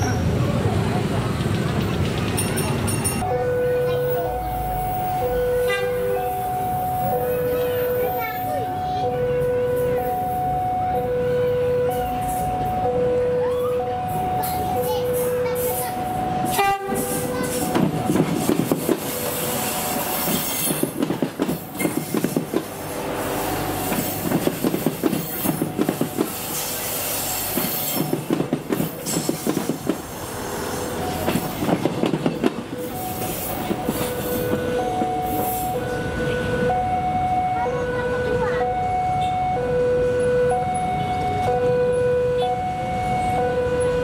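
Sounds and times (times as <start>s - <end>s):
train wheels clicking over rail joints: 1.2s - 3.2s, 17.0s - 35.8s
level crossing alarm: 3.2s - 20.9s, 30.7s - 44.0s.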